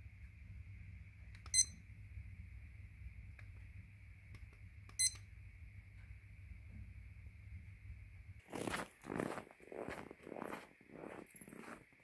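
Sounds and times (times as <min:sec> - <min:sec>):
short electronic beeps: 0:01.5 - 0:01.8, 0:05.0 - 0:05.2.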